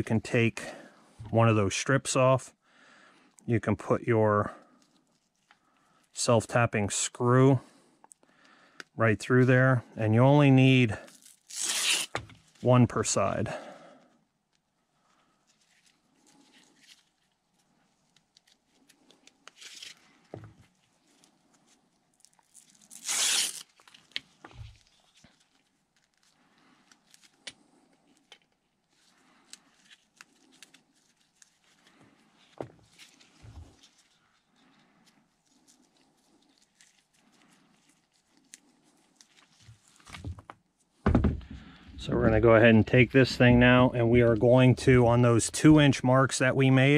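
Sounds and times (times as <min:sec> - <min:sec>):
rustling of handling: 0:04.6 - 0:06.2, 0:10.6 - 0:12.8, 0:14.1 - 0:44.5
velcro ripping: 0:10.9 - 0:12.6, 0:15.6 - 0:40.3.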